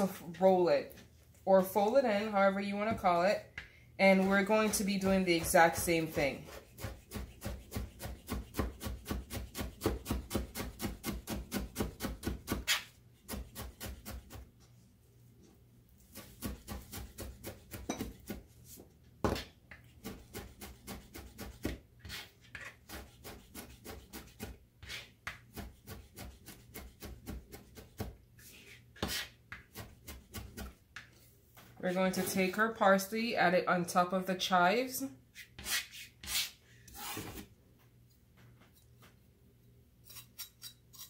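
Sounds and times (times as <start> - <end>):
knife chopping on cutting board: 4.1 - 14.4, 16.1 - 18.4, 19.2 - 22.3, 22.9 - 28.2, 29.0 - 30.8.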